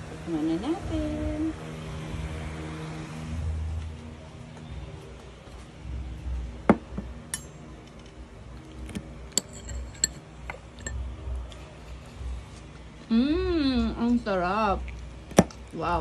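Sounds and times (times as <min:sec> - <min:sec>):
fork clinking on glass bowl: 0:09.4 - 0:11.0.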